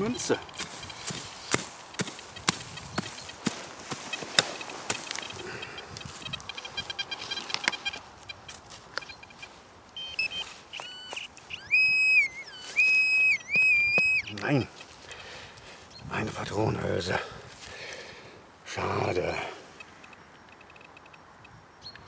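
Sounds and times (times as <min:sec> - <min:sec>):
pinpointer electronic tones: 0:00.0 - 0:15.1, 0:18.8 - 0:22.0
spade chopping soil: 0:00.5 - 0:05.4.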